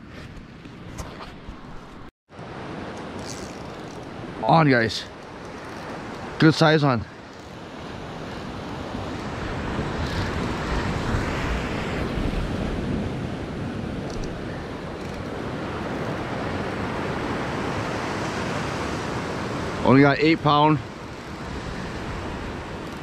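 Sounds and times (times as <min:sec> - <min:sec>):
sea surf washing on rocks: 0:02.5 - 0:23.0
wind on microphone: 0:07.4 - 0:19.8.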